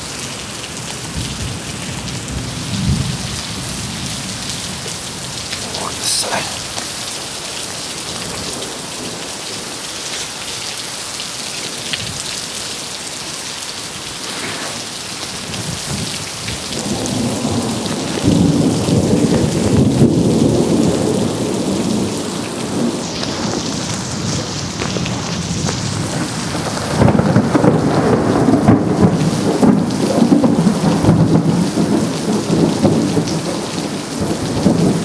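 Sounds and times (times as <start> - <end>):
heavy rain falling: 0.0 - 35.0
thunder rumbling: 15.3 - 35.0.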